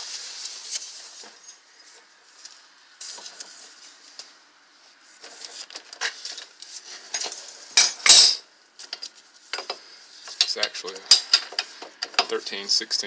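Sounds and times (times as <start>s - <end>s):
metal tools clinking and scraping: 6.0s - 12.6s.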